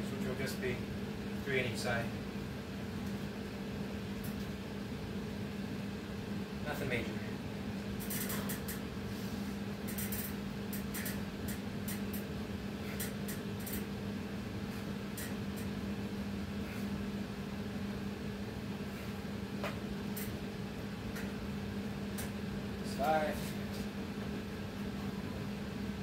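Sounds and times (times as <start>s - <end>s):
low appliance hum: 0.0s - 26.0s
faint clicks and ticks: 9.8s - 12.3s, 13.0s - 13.9s.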